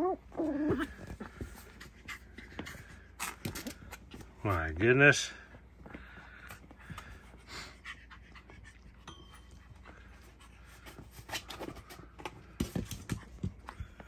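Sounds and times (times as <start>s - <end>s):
puppy panting: 0.4s - 3.2s, 5.8s - 14.0s.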